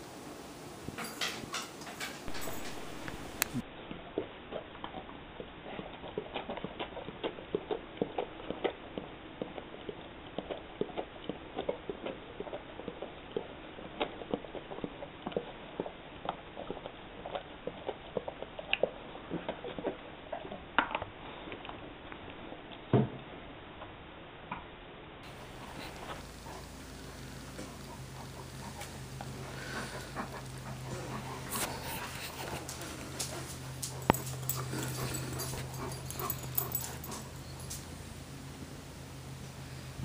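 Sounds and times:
dog licking plastic bottle: 27.6s - 36.0s.

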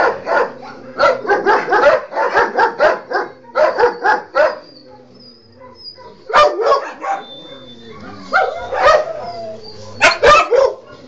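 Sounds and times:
dog barking: 0.0s - 9.4s, 10.0s - 11.0s.

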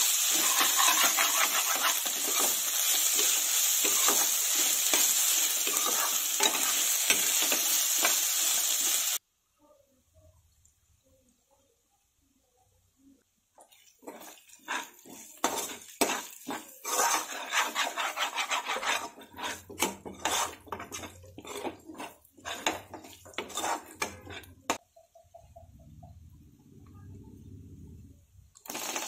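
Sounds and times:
spatula scraping a pan: 0.0s - 9.2s, 13.8s - 24.8s.

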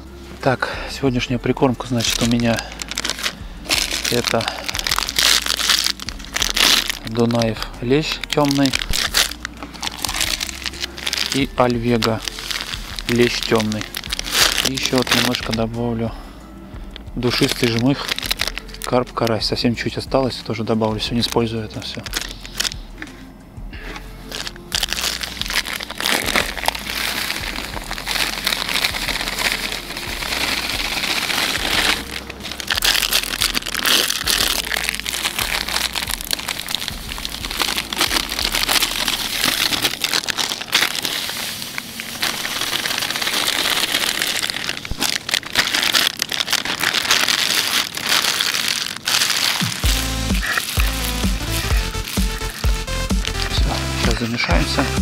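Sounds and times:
plastic bags crinkling: 0.0s - 16.1s, 16.9s - 23.2s, 23.8s - 55.0s
dry bait mix pouring into bucket: 2.0s - 7.6s, 8.4s - 15.6s, 17.3s - 19.0s, 24.3s - 53.4s.

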